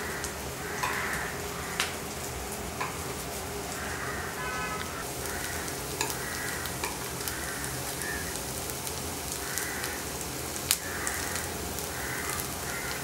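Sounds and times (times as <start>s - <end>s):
food sizzling in oil: 0.0s - 13.0s
metal spoon clicking on pan: 2.8s - 3.2s, 6.0s - 7.1s.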